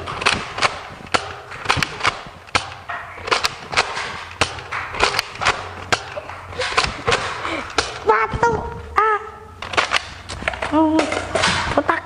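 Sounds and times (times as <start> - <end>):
darts hitting cardboard and walls: 0.0 - 8.2, 9.6 - 11.8.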